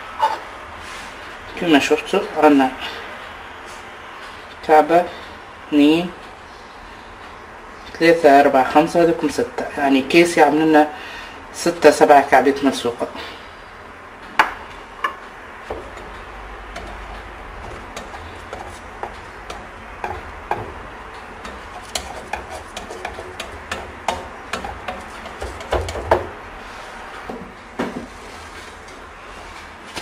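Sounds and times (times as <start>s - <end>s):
dough tapping on hot pan: 14.4s - 26.4s.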